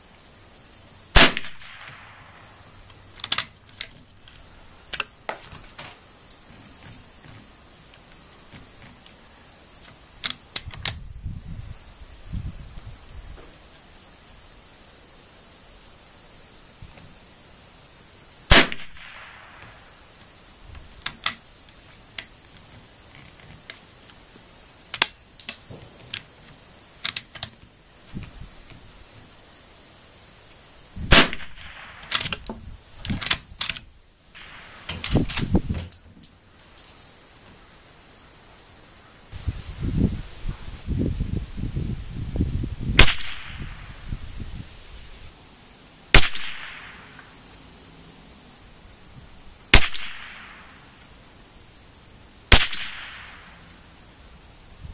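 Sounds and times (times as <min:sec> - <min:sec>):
insects chirring: 0:00.0 - 0:54.9
rifle shots: 0:01.2 - 0:02.2, 0:18.5 - 0:19.6, 0:31.1 - 0:32.2, 0:43.0 - 0:43.6, 0:46.2 - 0:47.0, 0:49.7 - 0:50.5, 0:52.5 - 0:53.4.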